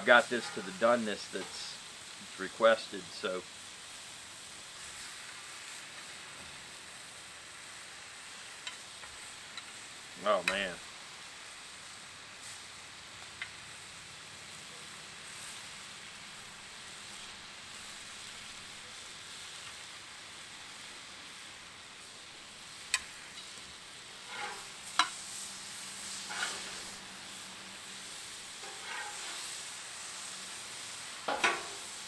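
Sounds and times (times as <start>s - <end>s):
steak sizzling on griddle: 0.0s - 32.0s
spatula metal clicks and scrape: 24.3s - 25.2s, 26.3s - 26.8s.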